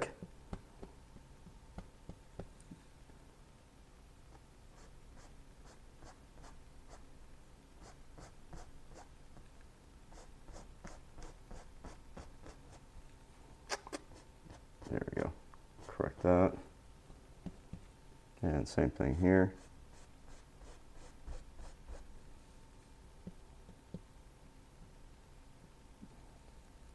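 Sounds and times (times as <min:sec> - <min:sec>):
paintbrush strokes with thick paint: 0:19.5 - 0:22.1.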